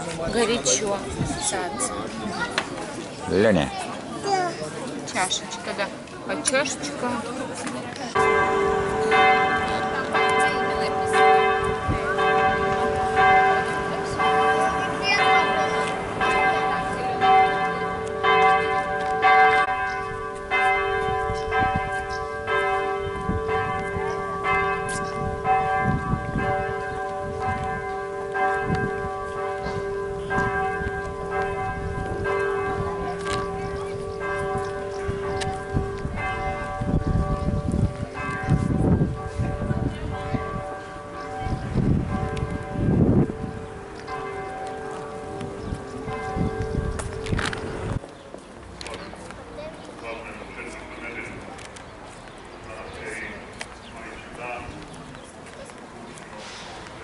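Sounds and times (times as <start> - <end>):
church bells ringing: 8.1 - 51.7.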